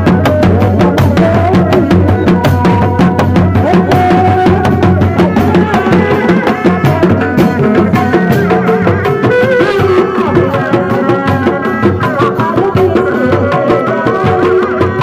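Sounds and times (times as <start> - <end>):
hand drums beating fast rhythm: 0.0 - 15.0.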